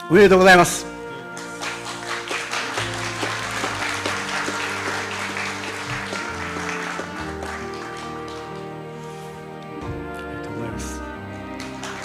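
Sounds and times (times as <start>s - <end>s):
background music with held notes: 0.0s - 12.0s
audience applause: 1.4s - 8.9s, 11.4s - 12.0s.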